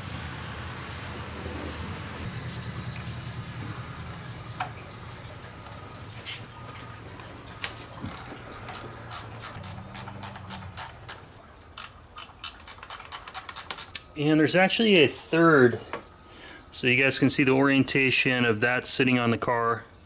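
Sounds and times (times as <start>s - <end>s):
low steady hum: 0.0s - 20.0s
ratchet wrench clicking: 5.6s - 5.8s, 8.0s - 11.2s, 11.8s - 14.0s.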